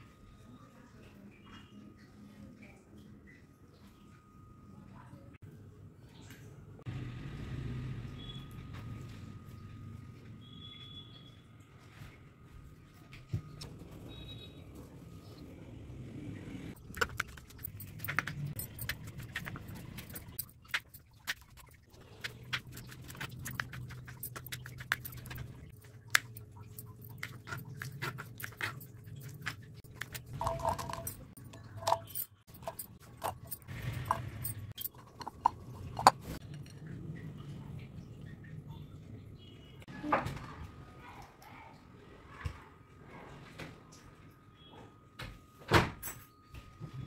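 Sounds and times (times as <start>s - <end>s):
metal bangles jingling: 16.8s - 21.7s, 22.3s - 36.4s.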